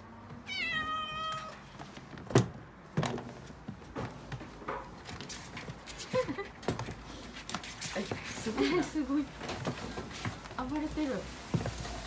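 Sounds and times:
kitten meowing: 0:00.5 - 0:01.6.

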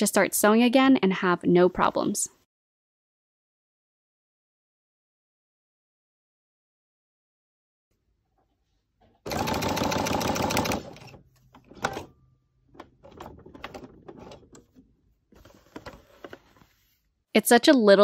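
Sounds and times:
sewing machine stitching: 0:09.3 - 0:12.1, 0:12.8 - 0:16.6.

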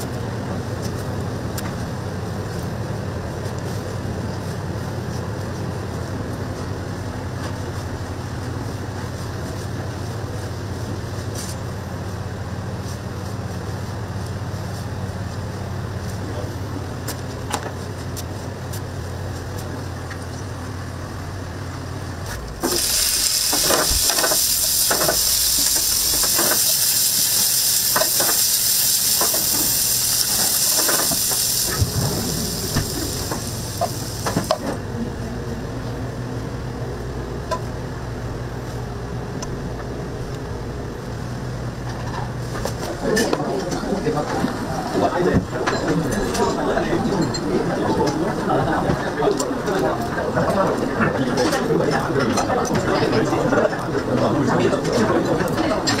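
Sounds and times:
steady low hum: 0:00.0 - 0:56.0
meat sizzling in a pan: 0:22.6 - 0:34.6.

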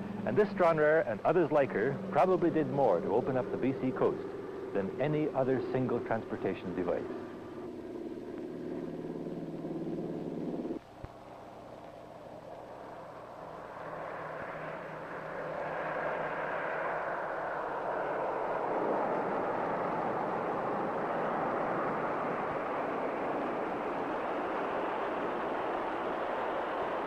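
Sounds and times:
radial aircraft engines at high power: 0:00.0 - 0:27.0
hull rushing across water: 0:12.0 - 0:27.0.

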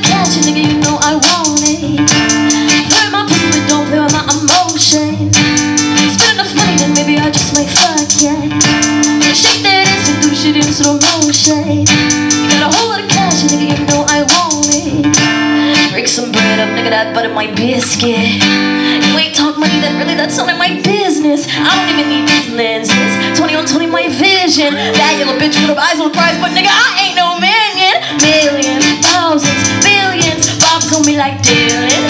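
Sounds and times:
percussive beat: 0:00.0 - 0:16.0, 0:28.2 - 0:32.0
looped vocal and guitar music: 0:00.0 - 0:32.0
woman singing into a microphone: 0:00.0 - 0:32.0.

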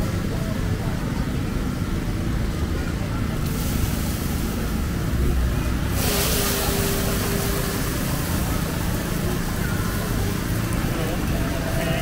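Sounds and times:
hiss: 0:05.9 - 0:08.9.

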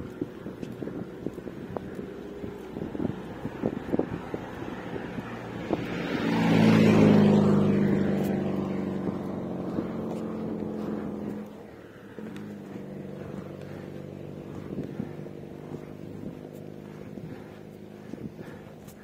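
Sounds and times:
vehicle engine passing by: 0:00.0 - 0:19.0.

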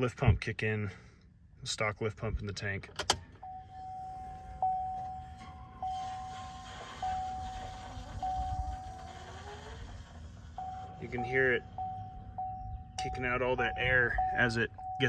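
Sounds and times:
fuel pump low hum: 0:03.2 - 0:15.0
warning chime repeating tone: 0:10.6 - 0:15.0.

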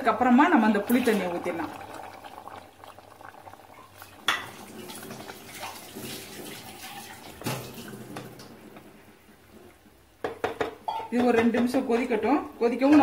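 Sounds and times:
liquid pouring into a pot: 0:00.0 - 0:08.7.

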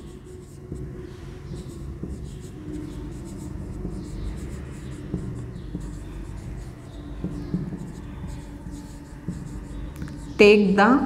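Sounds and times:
marker pen writing on whiteboard: 0:00.0 - 0:10.4.

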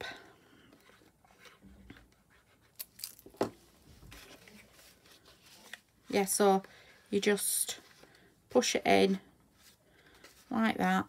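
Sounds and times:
paper rustling: 0:00.8 - 0:05.9.

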